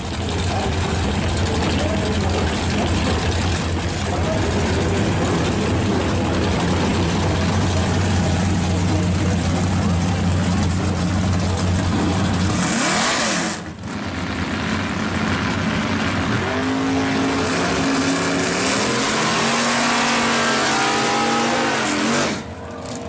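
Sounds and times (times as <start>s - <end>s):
car engine revving: 0.0s - 23.0s
deep engine rumble: 0.0s - 23.0s.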